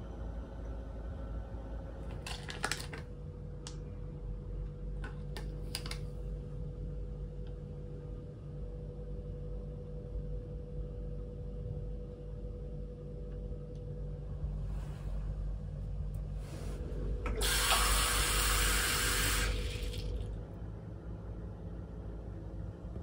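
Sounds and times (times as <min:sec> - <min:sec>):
low steady hum: 0:00.0 - 0:23.0
tap water running into a cup: 0:17.3 - 0:20.2.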